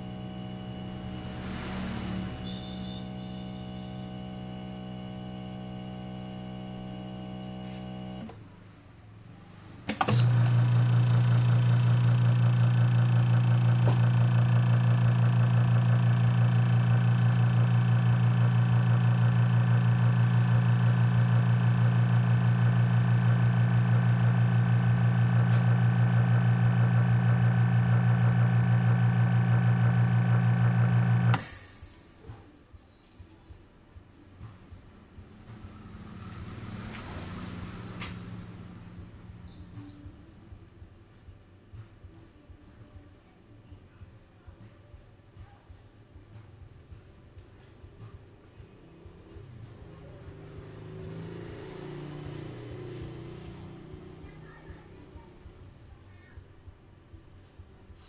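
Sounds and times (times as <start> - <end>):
vacuum pump buzzing hum: 0.0 - 8.4, 9.9 - 31.8.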